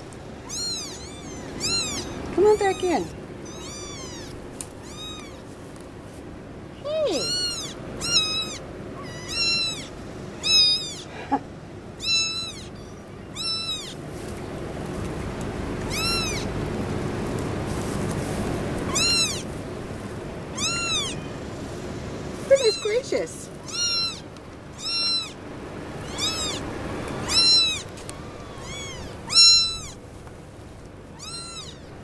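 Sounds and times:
kittens mewing: 0.4s - 5.5s, 6.9s - 14.0s, 15.8s - 16.6s, 18.8s - 19.5s, 20.5s - 21.5s, 22.4s - 30.0s, 31.1s - 32.0s
soft rustling: 2.6s - 6.4s, 14.0s - 15.3s, 17.2s - 20.2s.

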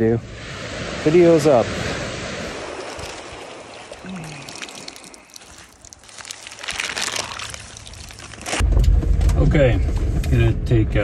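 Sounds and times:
surf washing on sand beach: 0.0s - 5.3s
plastic bag crinkling: 4.5s - 8.6s.

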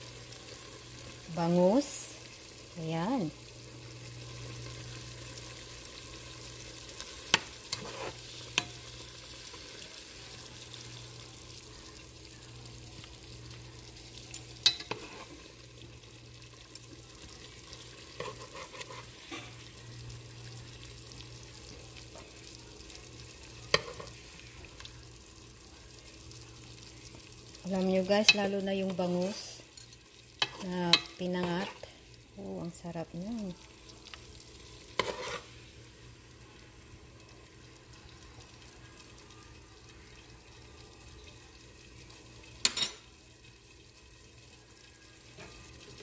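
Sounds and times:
metal spoon clinking on ceramic: 42.6s - 43.0s.

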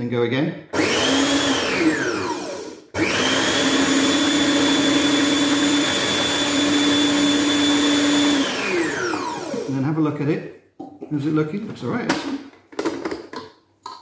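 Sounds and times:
food processor motor: 0.8s - 9.8s.

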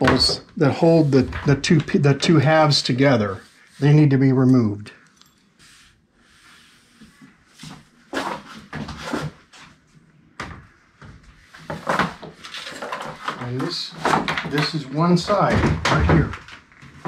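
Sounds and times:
wooden pieces scraping and knocking: 11.6s - 17.0s.

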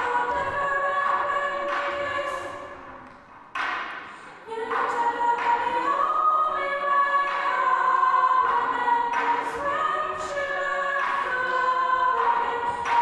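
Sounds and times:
vocal group singing a cappella: 0.0s - 3.0s, 4.3s - 13.0s
short percussive accents: 0.0s - 5.6s.

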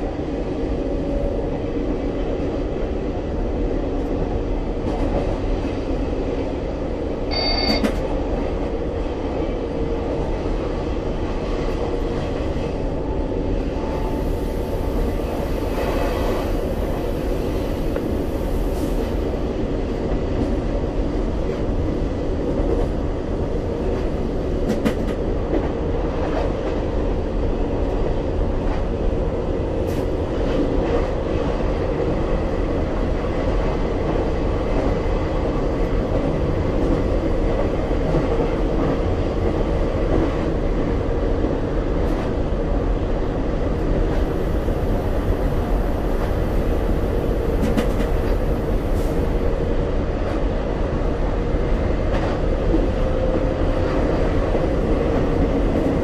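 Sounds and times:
train running rumble: 0.0s - 56.0s
brief high tone: 7.3s - 7.9s.

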